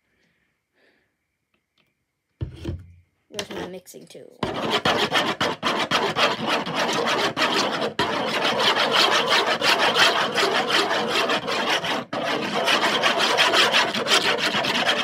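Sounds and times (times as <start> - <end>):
tool scraping round a plate: 4.4 - 15.0.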